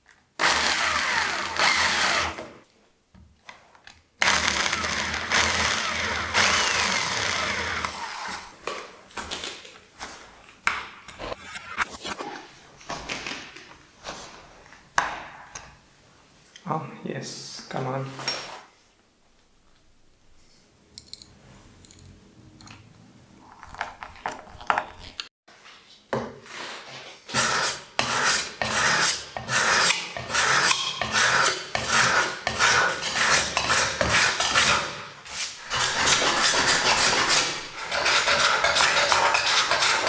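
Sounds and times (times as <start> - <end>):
edge tool scraping wood: 27.3 - 40.0.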